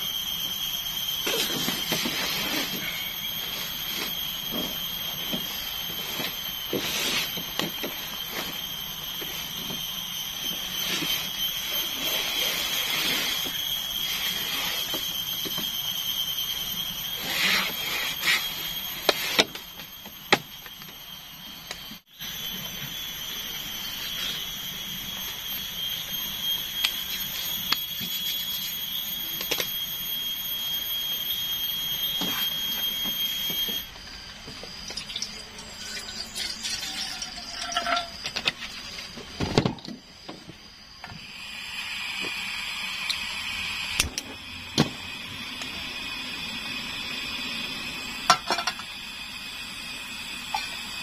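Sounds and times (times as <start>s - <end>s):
gas stove hissing: 0.0s - 51.0s
steady high buzz: 0.0s - 51.0s
water poured into metal kettle: 35.0s - 38.2s.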